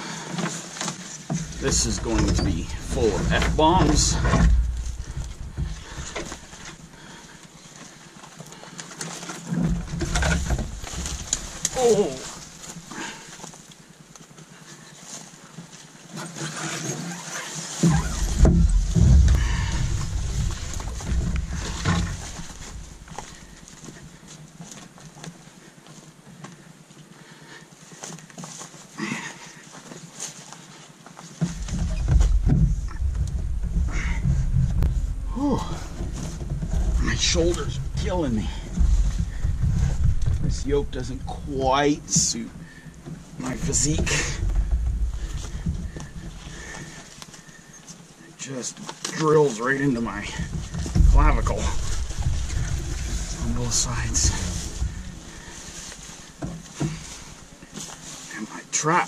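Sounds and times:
footsteps on rough trail: 0.0 - 59.0
small knocks: 1.3 - 7.3, 17.8 - 24.2, 31.4 - 47.6, 50.2 - 58.1
low rumble: 1.5 - 7.3, 17.9 - 23.8, 31.8 - 47.0, 50.2 - 57.5
man breathing hard: 19.0 - 23.7.

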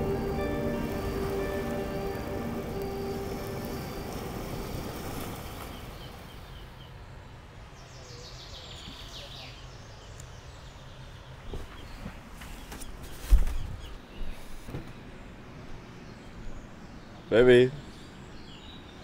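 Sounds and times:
background music: 0.0 - 5.4
low ambient hum: 0.0 - 8.2
birds chirping: 0.0 - 19.0.

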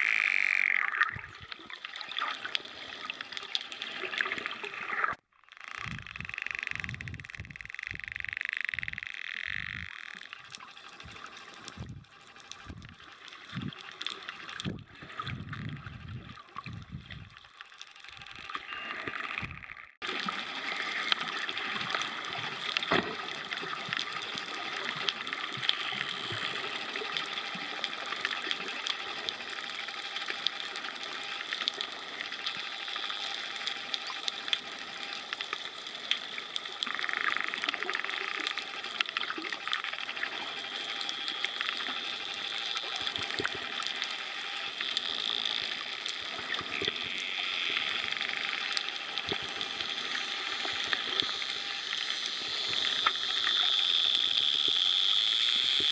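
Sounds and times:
underwater rumbling: 3.6 - 29.6
dolphin clicks: 5.4 - 14.7, 20.8 - 55.9
underwater water hiss: 47.7 - 55.9.

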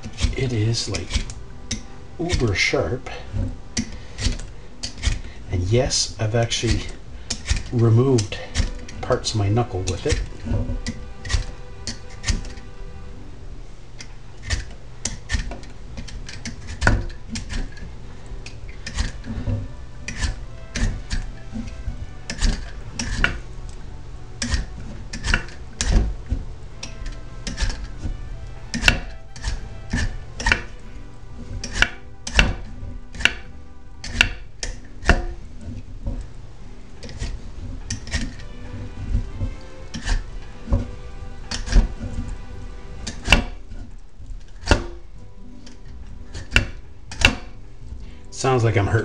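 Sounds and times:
peeler scraping squash skin: 0.0 - 12.9, 14.0 - 48.1.

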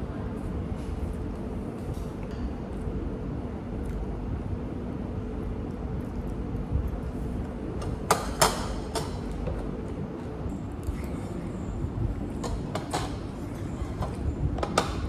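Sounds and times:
low room hum: 0.0 - 15.0
utensils clinking against a dish: 12.3 - 15.0.

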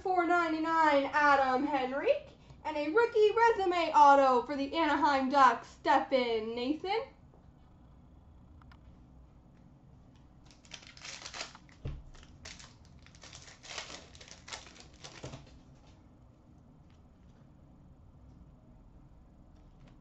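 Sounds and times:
cards rustling: 10.4 - 15.6
foil wrapper crinkling and tearing: 10.4 - 15.6.

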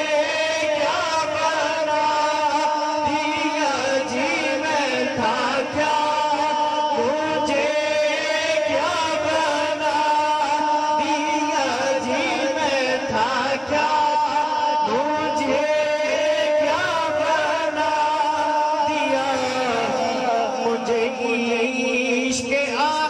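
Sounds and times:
man chanting into microphone: 0.0 - 23.0.

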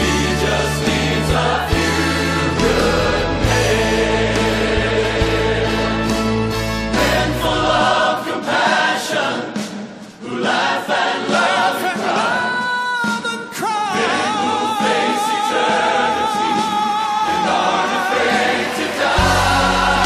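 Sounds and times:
heavy low accompaniment: 0.0 - 8.4, 18.6 - 20.0
gospel choir singing: 0.0 - 12.8, 13.5 - 20.0.

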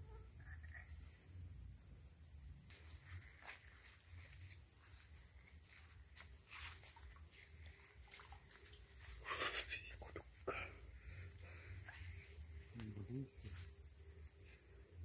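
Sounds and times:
night insects trilling: 0.0 - 15.0
footsteps through grass: 3.0 - 9.7.

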